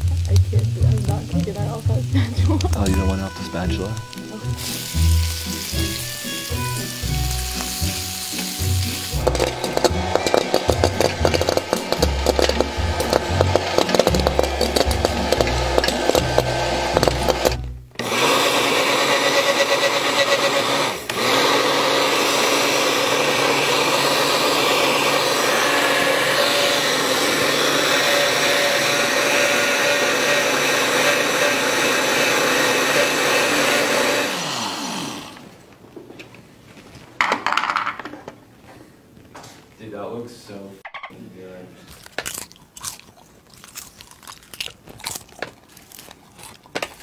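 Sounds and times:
music: 0.0s - 18.0s
blender motor running: 2.7s - 35.6s.

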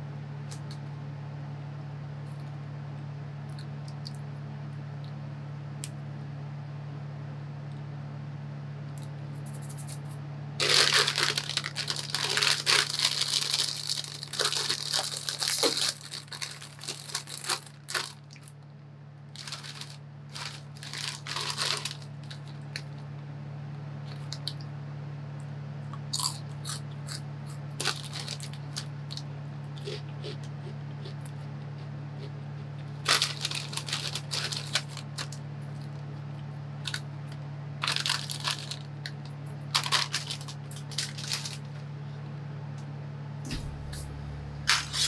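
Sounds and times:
low hum: 0.0s - 45.0s
foil snack bag crinkling: 9.4s - 18.6s, 19.3s - 23.1s, 26.2s - 29.2s, 31.7s - 36.0s, 36.8s - 37.1s, 37.8s - 41.8s, 44.6s - 45.0s.

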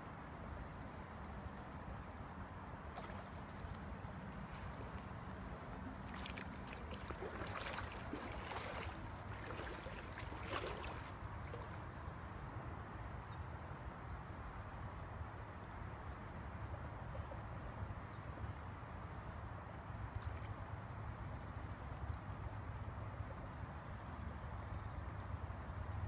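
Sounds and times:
river rushing: 6.0s - 11.7s
fish splashing at surface: 6.2s - 11.1s.

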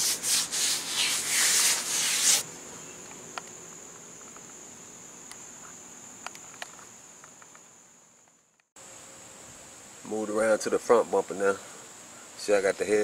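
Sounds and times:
sander rasping on plastic: 0.0s - 2.4s.

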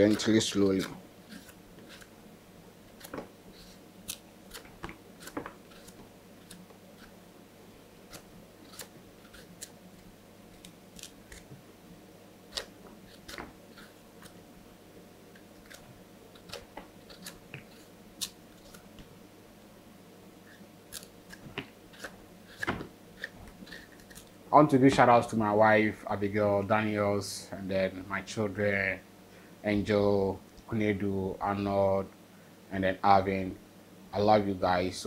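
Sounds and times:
knife cutting and scraping yam skin: 0.0s - 2.1s, 2.9s - 7.2s, 8.0s - 11.5s, 12.5s - 14.4s, 15.3s - 18.9s, 20.5s - 24.3s
faint steady hum: 0.0s - 35.0s.

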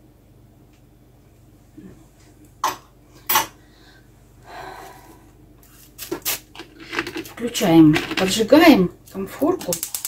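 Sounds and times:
person breathing out: 3.6s - 5.4s.

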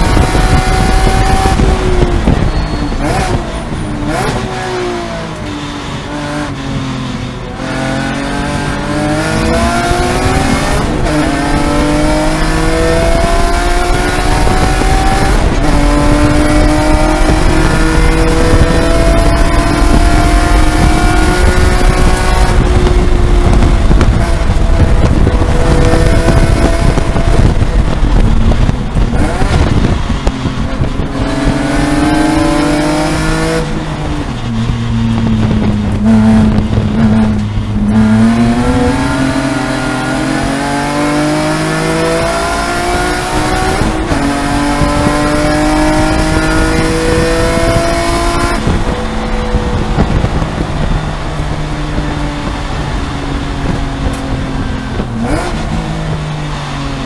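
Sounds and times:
race car engine from cockpit: 0.0s - 57.0s.

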